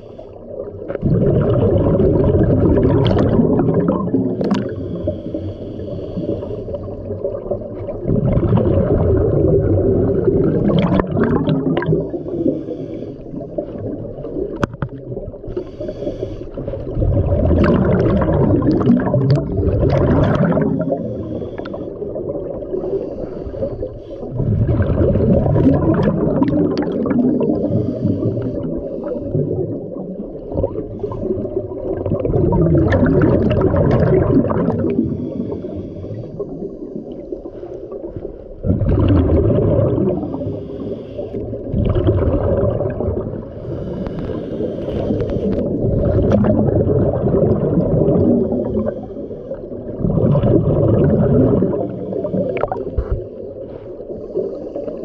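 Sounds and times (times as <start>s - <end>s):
diver inhaling through regulator: 0.0s - 0.6s, 3.6s - 7.2s, 10.7s - 13.8s, 15.4s - 17.0s, 19.9s - 24.9s, 27.1s - 31.7s, 34.2s - 38.6s, 39.9s - 41.7s, 43.4s - 46.1s, 48.2s - 50.0s, 51.4s - 55.0s
exhaled bubbles gurgling underwater: 0.0s - 55.0s.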